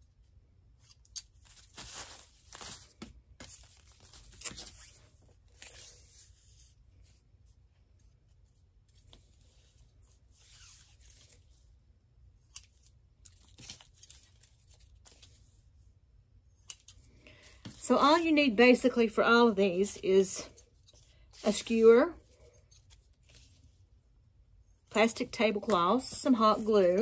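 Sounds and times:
plastic rustling: 0:01.4 - 0:04.8.

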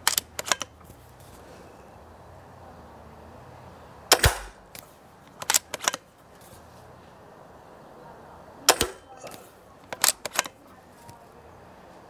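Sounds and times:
rifle bolt metallic clicks: 0:00.0 - 0:00.9, 0:04.1 - 0:06.1, 0:08.7 - 0:10.6
air rifle shot: 0:04.1 - 0:04.7, 0:08.7 - 0:09.1.

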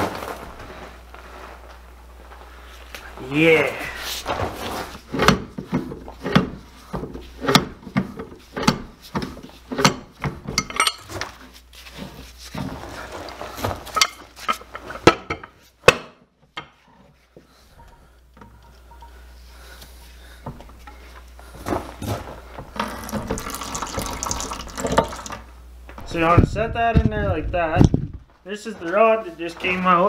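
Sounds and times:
metal clanks and knocks: 0:05.1 - 0:11.3.

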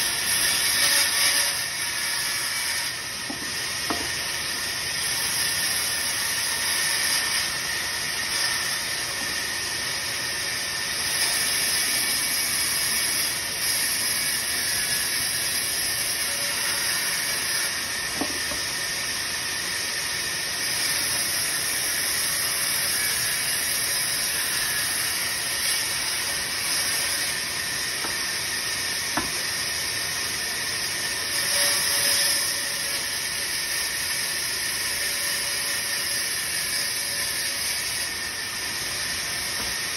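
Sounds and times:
band saw cutting wood: 0:00.0 - 0:39.9.

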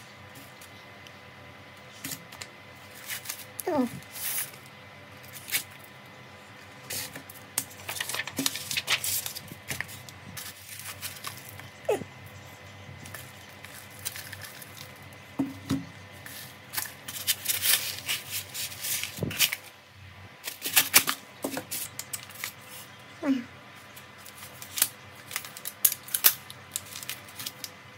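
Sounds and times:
rustles and scrapes: 0:01.9 - 0:04.6, 0:06.5 - 0:15.6, 0:16.2 - 0:19.8.

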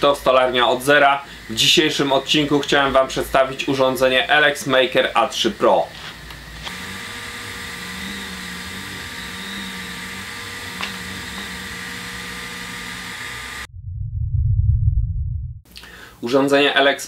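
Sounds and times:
laser engraver whirring: 0:05.2 - 0:13.7
stepper motor hum: 0:06.3 - 0:15.6.

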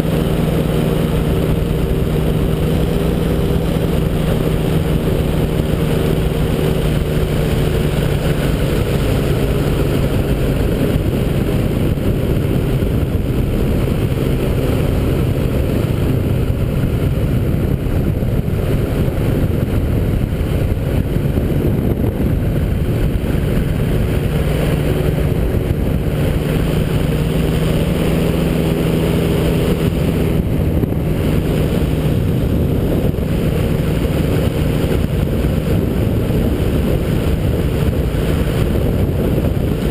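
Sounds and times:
engine and propeller drone: 0:00.0 - 0:39.9.

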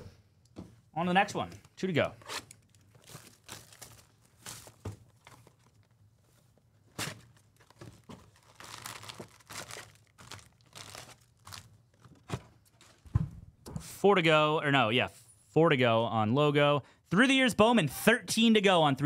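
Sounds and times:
wrapper tearing and crinkling: 0:02.2 - 0:05.9, 0:07.3 - 0:12.2.

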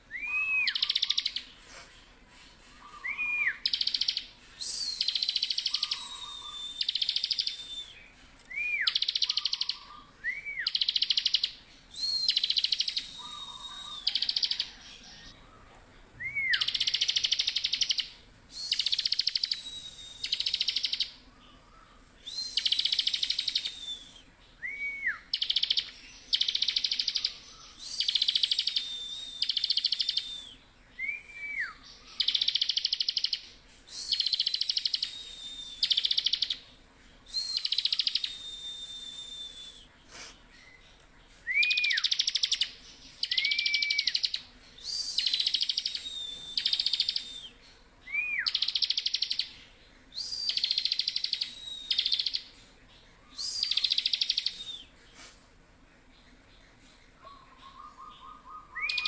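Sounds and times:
bird high drawn-out whistle: 0:04.6 - 0:11.2, 0:11.9 - 0:14.8, 0:27.7 - 0:31.8, 0:37.3 - 0:40.3, 0:41.4 - 0:42.6, 0:43.2 - 0:49.4, 0:50.2 - 0:52.6, 0:57.6 - 0:59.0.

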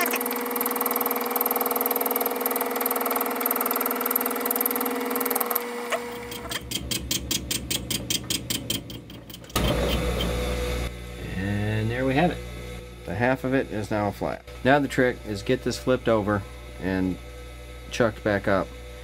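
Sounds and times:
lathe spindle coasting down: 0:00.0 - 0:10.9
lathe motor humming: 0:00.0 - 0:11.3.

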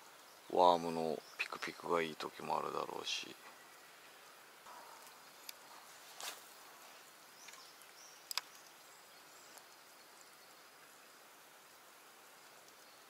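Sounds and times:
faint steady hiss: 0:00.0 - 0:13.0
sharp clicks: 0:08.2 - 0:08.7.

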